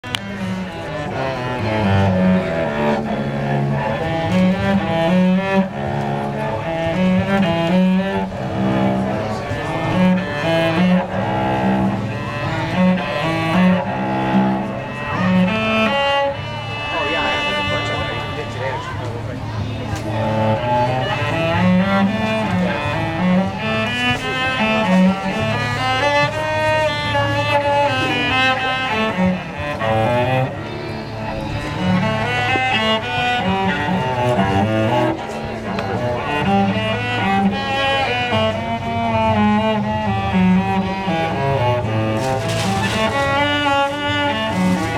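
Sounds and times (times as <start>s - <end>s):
bowed cello melody: 0.0s - 44.9s.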